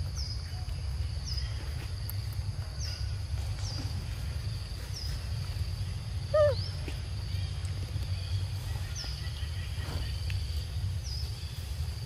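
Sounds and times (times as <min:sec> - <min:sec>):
insect drone: 0:00.0 - 0:12.0
wavering animal call: 0:06.3 - 0:06.8.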